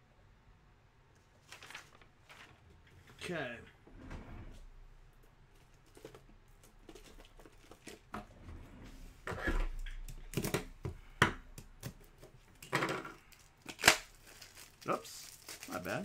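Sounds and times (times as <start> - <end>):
crinkling wrappers: 1.2 - 2.6, 13.1 - 16.0.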